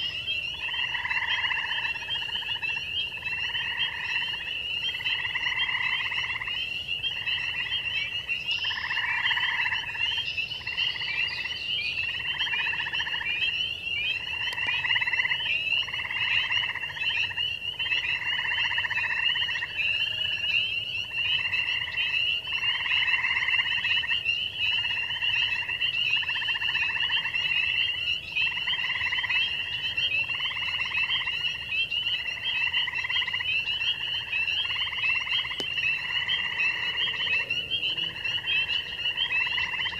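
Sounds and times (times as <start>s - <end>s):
high overlapping frog peeps: 0.0s - 39.9s
low frog trill: 32.3s - 39.9s.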